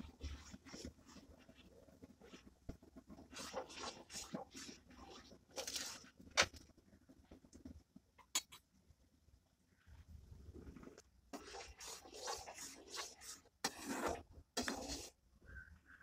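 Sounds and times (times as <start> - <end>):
spoon scraping a pan: 3.2 - 6.5, 11.3 - 15.2.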